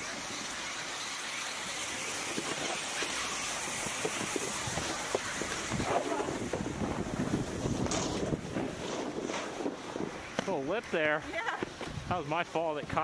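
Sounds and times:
snowboard scraping on snow: 0.0s - 12.7s
steady rushing hiss: 0.0s - 13.0s
knocks and scrapes: 7.2s - 10.6s.

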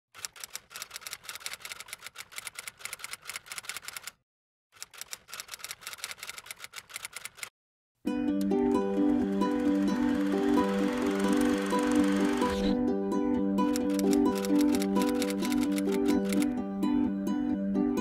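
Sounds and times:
typewriter keys clicking: 0.2s - 4.2s, 4.8s - 7.5s, 13.7s - 16.5s
music with steady pitched notes: 8.1s - 18.0s.

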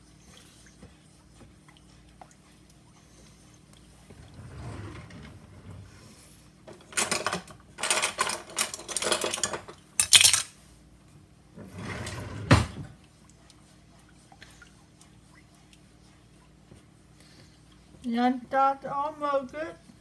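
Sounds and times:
kitchen items clattering: 6.7s - 10.5s.

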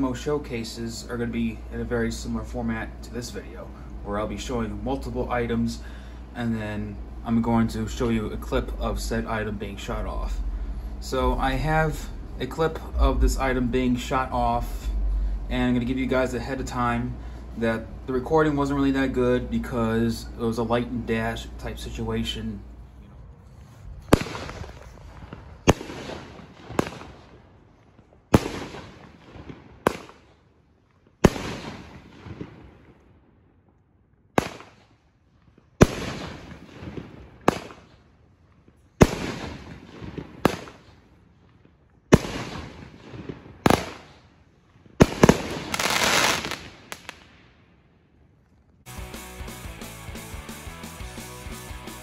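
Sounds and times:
firework bangs: 24.1s - 27.4s, 28.3s - 30.3s, 31.2s - 32.9s, 35.8s - 38.0s, 39.0s - 41.0s, 42.1s - 44.2s, 44.9s - 47.4s
firework crackle: 45.0s - 47.4s.

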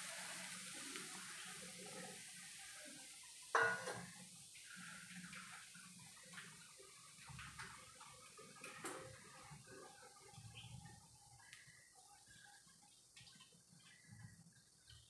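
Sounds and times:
metal dish clanking down: 3.6s - 4.1s
faint small ticks: 10.4s - 15.0s.

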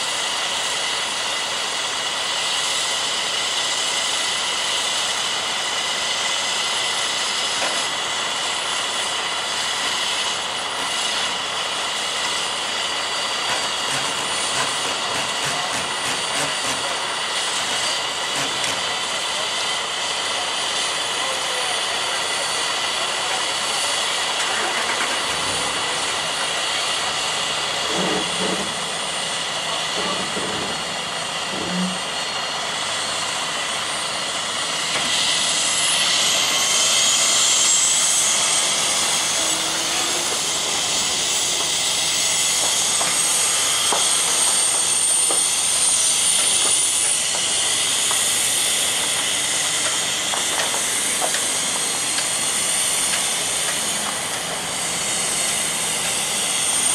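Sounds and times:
diesel truck idling: 0.0s - 56.8s
high whine: 24.7s - 56.9s.

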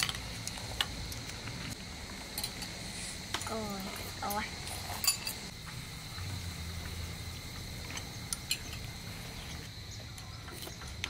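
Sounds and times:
utensils clinking on ceramic bowl: 4.6s - 5.5s.

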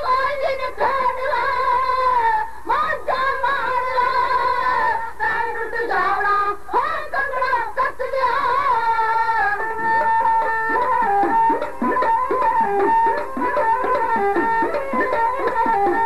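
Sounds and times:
women singing a ballad together: 0.0s - 12.1s.

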